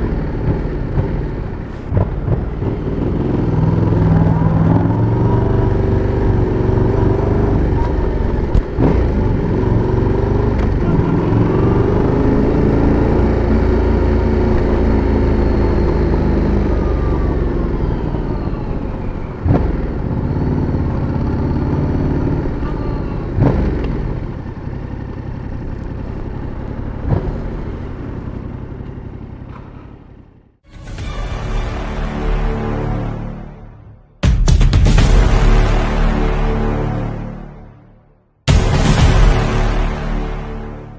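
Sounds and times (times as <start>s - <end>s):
motorcycle engine revving: 0.0s - 30.6s.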